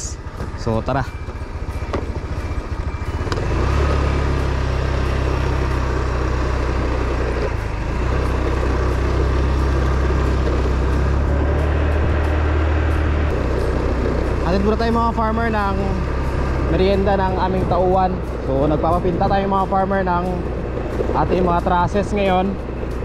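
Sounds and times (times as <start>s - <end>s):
motor scooter engine running: 0.0s - 23.0s.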